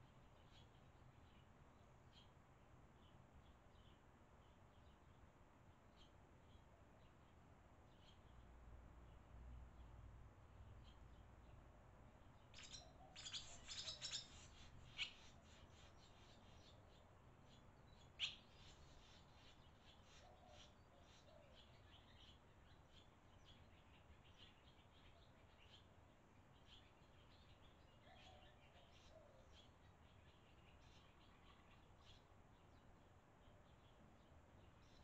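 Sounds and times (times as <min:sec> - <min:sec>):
swallows chirping: 0:12.4 - 0:26.0.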